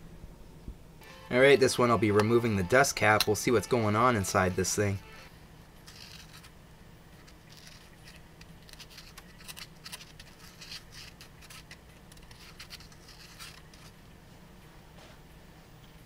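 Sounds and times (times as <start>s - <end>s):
marker scratching on paper cone: 9.9s - 13.9s.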